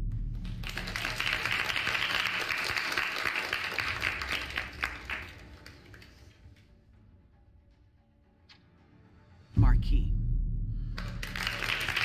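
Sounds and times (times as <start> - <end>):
deep musical boom: 0.0 - 1.2, 9.6 - 11.2
people applauding: 0.3 - 6.4, 11.0 - 12.0.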